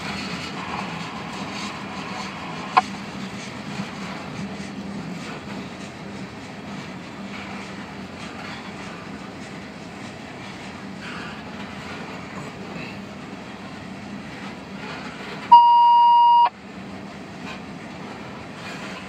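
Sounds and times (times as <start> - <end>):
train wheels rumbling on rails: 0.0 - 15.6, 16.5 - 19.0
loud electronic beep: 15.5 - 16.5.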